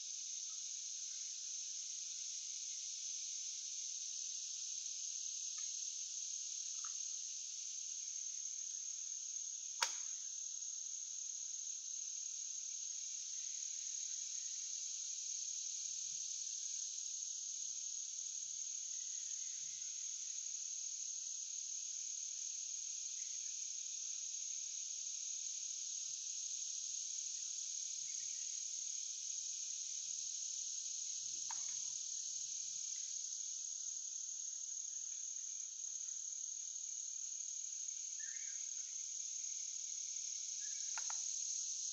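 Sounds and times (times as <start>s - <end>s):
insects chirping: 0.0s - 41.9s
sharp click: 9.8s - 10.1s.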